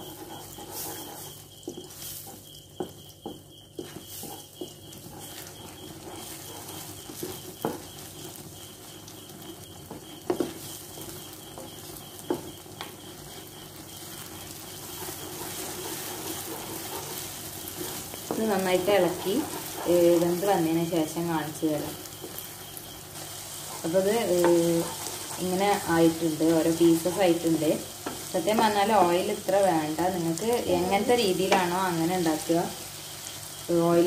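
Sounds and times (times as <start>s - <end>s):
wooden spatula scraping pan: 0.0s - 33.8s
egg frying in hot oil: 0.0s - 34.0s
spatula knocking against pan: 2.8s - 8.3s, 9.3s - 13.4s.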